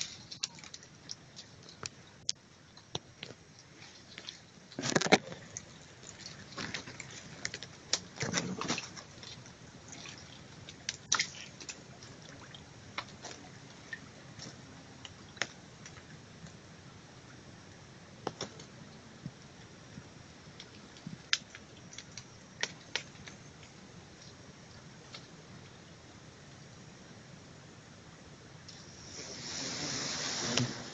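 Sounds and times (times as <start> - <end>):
faint steady hiss: 0.0 - 30.9
leaves and grass brushing microphone: 28.8 - 30.9.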